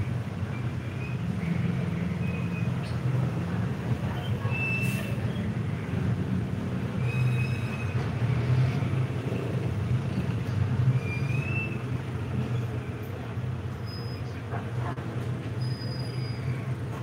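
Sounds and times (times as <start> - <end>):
vehicle engine rumbling: 0.0 - 17.0
short high squeaks: 10.9 - 12.8, 13.8 - 14.4, 15.6 - 16.7.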